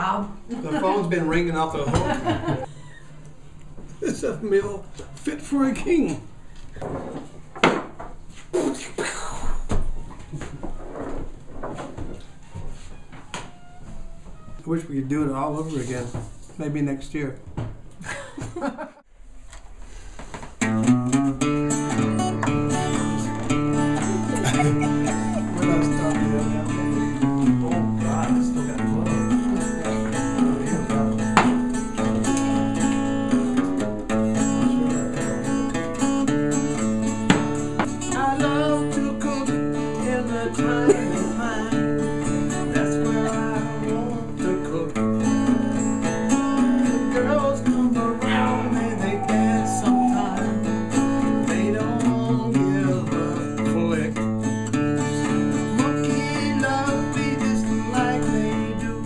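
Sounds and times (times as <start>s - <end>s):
country acoustic guitar music: 0.0s - 2.7s, 3.9s - 6.4s, 20.6s - 59.0s.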